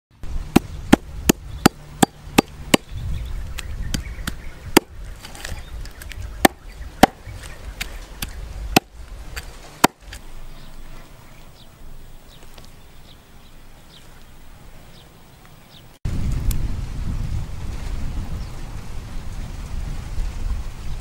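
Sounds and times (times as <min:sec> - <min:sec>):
knife chopping on wooden block: 0:06.4 - 0:07.2.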